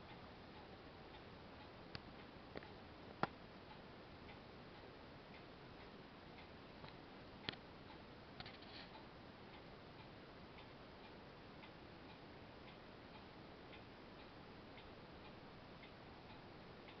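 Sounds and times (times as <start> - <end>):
faint steady hiss: 0.0 - 17.0
soft regular ticks: 0.0 - 17.0.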